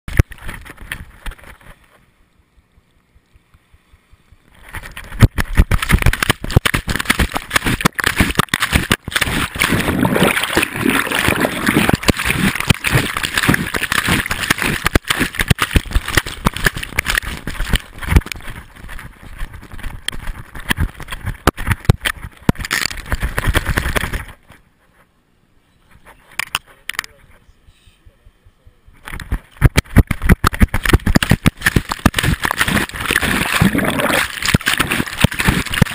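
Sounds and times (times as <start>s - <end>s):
camera rubbing against dog fur: 11.6s - 25.1s, 25.8s - 27.4s.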